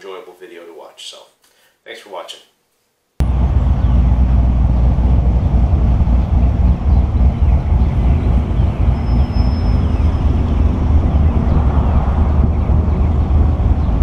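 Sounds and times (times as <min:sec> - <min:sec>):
car engine idling: 0:03.2 - 0:11.5
wind buffeting microphone: 0:03.2 - 0:14.0.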